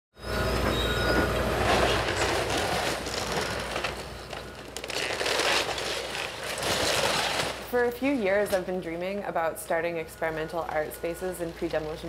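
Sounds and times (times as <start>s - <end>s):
timber cracking and crunching: 1.9s - 7.7s.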